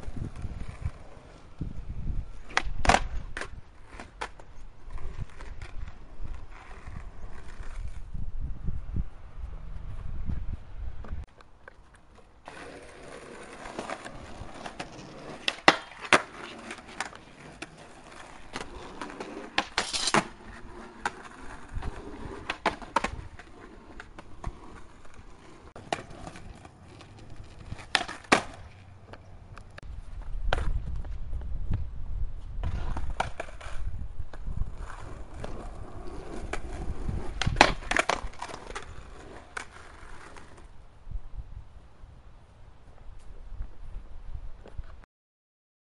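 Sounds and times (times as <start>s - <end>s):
skateboard wheels rolling on asphalt: 0.0s - 45.0s
skateboard clacking on pavement: 2.4s - 7.9s, 11.0s - 29.8s, 32.6s - 40.7s.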